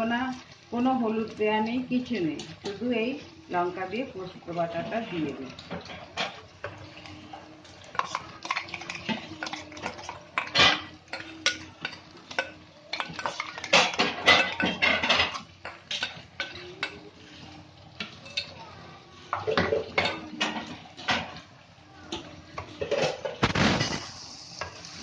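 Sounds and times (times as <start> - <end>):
metal bowl clinking and scraping: 4.6 - 18.6.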